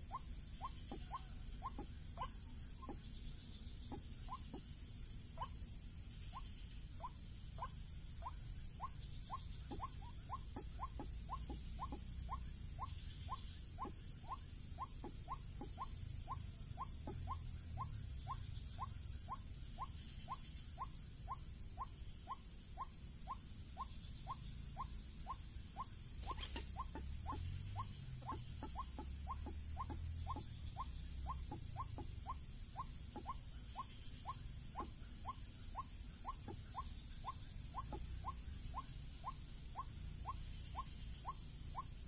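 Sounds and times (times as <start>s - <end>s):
waterhen calling: 24.3s - 41.9s.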